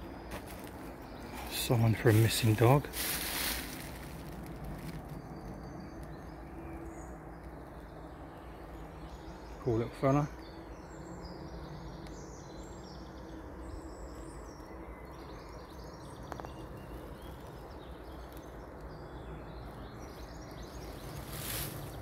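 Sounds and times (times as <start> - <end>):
low outdoor rumble: 0.0 - 22.0
small birds singing and chirping: 0.0 - 22.0.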